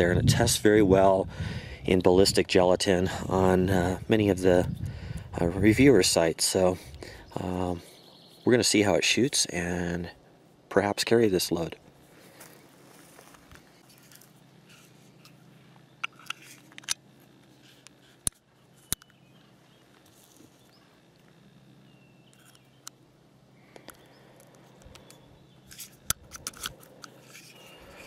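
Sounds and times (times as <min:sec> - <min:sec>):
small metallic clicks: 0:16.0 - 0:17.0, 0:17.7 - 0:19.2, 0:22.3 - 0:23.0, 0:23.7 - 0:27.7.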